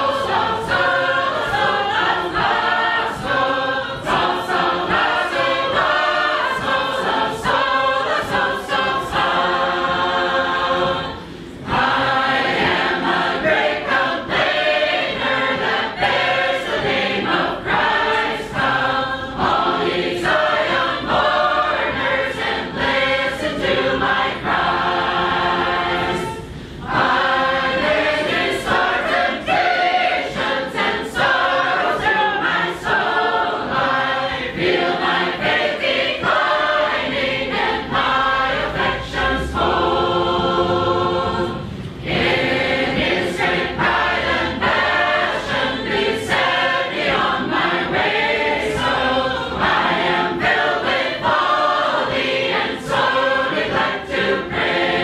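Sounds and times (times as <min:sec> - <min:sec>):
large group singing a cappella: 0:00.0 - 0:55.0.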